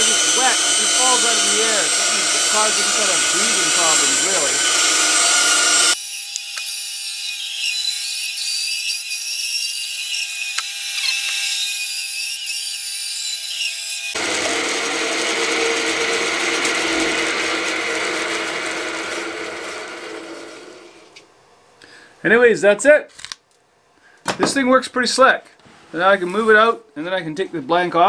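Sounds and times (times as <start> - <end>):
bandsaw cutting wood: 0.0 - 21.2.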